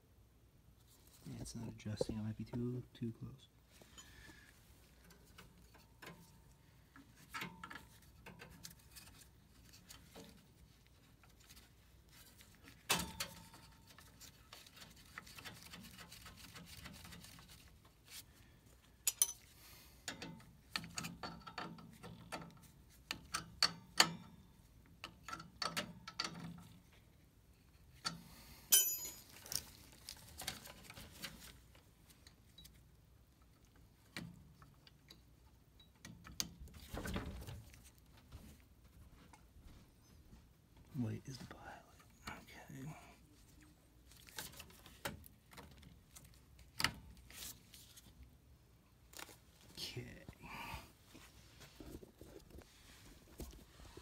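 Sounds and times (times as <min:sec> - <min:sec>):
small clicks and metal clatter: 0:19.0 - 0:27.1.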